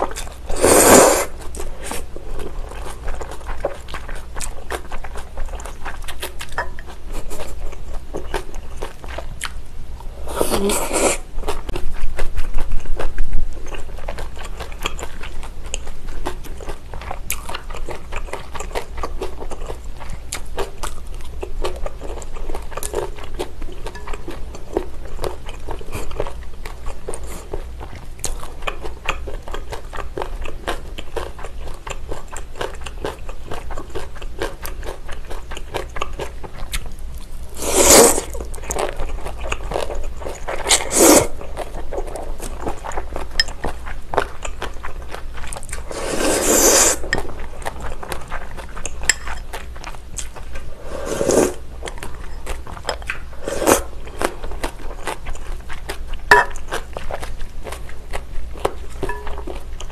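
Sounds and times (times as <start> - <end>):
noodle slurps: 0.5 - 2.0, 37.6 - 38.4, 40.6 - 41.4, 45.8 - 47.1, 50.7 - 51.6, 53.4 - 53.9
close chewing with wet crunches: 2.4 - 9.6, 38.2 - 46.0, 53.9 - 59.9.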